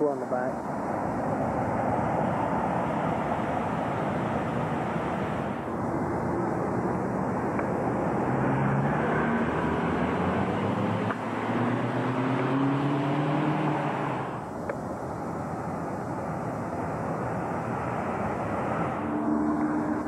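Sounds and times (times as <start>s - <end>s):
street traffic rush: 0.0s - 20.0s
vehicle engine driving by: 1.6s - 14.6s.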